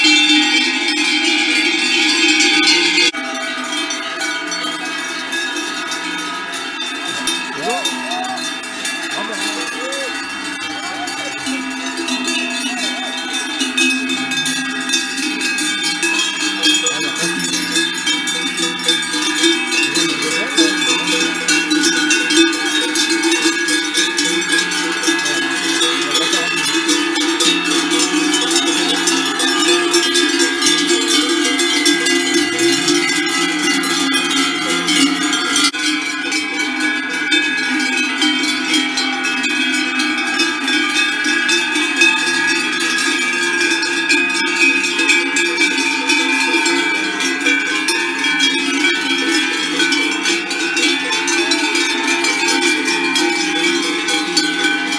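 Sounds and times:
cowbells clanging: 0.0 - 54.9.

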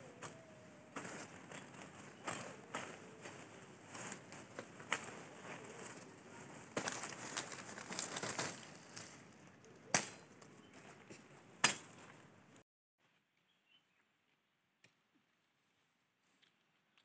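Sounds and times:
dry leaves rustling: 0.0 - 10.1
sharp snaps: 9.7 - 10.4.

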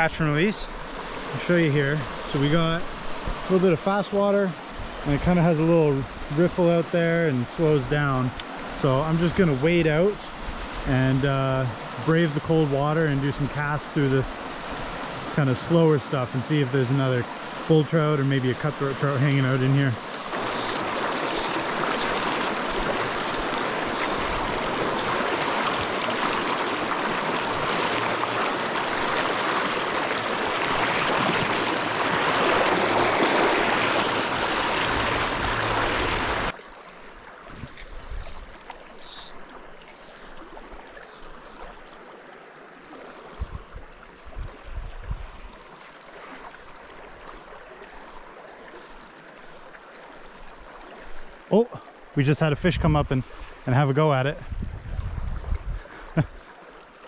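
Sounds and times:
river rushing: 0.0 - 43.3.

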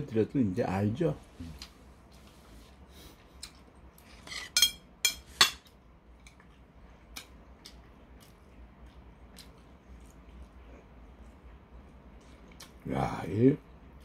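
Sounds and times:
metal chopsticks clinking on plate: 4.3 - 5.6.

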